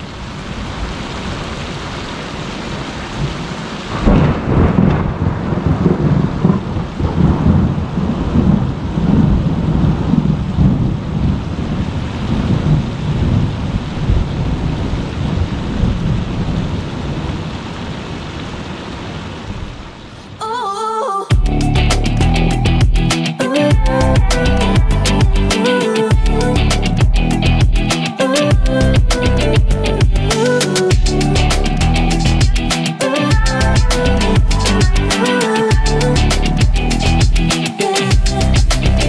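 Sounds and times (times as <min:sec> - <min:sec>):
heavy rain: 0:00.0 - 0:39.0
thunder crack and rumble: 0:03.2 - 0:17.9.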